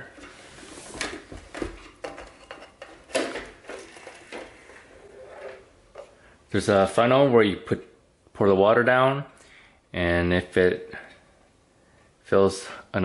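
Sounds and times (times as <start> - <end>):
plastic parts clicking and knocking: 1.4 - 4.8
soft rubbing of plastic: 3.6 - 6.2.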